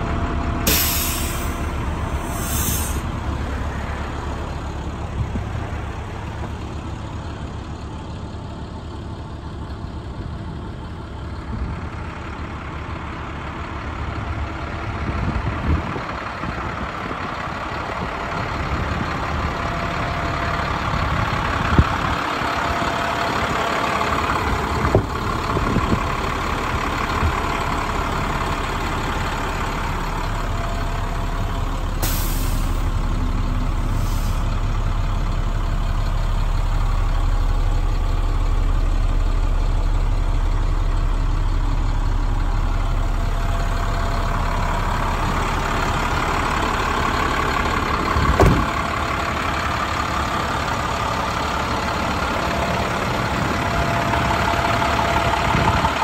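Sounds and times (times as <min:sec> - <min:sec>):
diesel truck engine idling: 0:00.0 - 0:56.0
brief high hisses: 0:00.7 - 0:01.6, 0:02.2 - 0:03.1
thump: 0:48.3 - 0:48.7.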